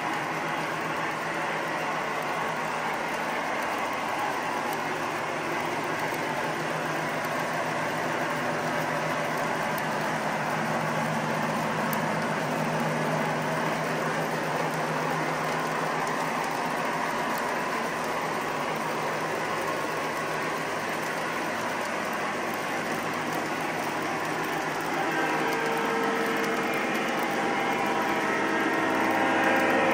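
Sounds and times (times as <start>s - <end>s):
model train wheels clattering: 11.5s - 29.9s
low hum: 22.2s - 29.9s.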